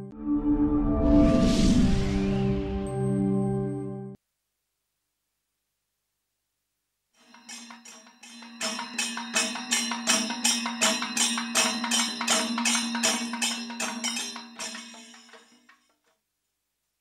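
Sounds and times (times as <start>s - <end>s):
rhythmic percussion strikes: 7.2s - 15.8s.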